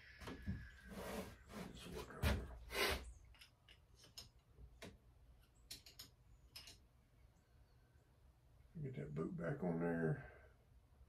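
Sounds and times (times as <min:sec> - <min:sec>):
light clicks of small parts: 0:03.3 - 0:06.9.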